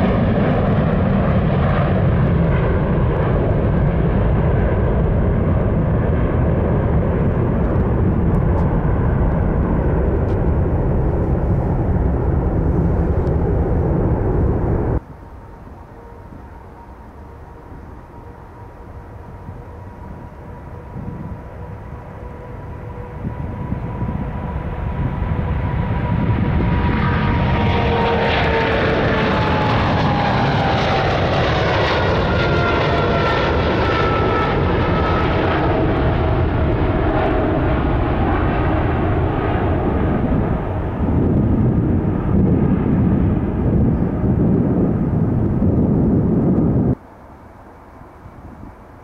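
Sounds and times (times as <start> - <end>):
jet engine whine: 0.0 - 49.0
jet engines rumbling at takeoff: 0.0 - 49.0.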